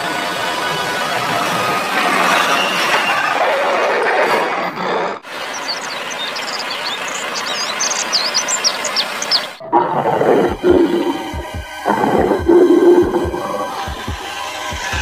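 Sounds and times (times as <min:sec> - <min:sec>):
high animal chirps: 0:05.4 - 0:14.0
deep rough animal sound: 0:09.6 - 0:14.3
low thumps: 0:09.6 - 0:15.0.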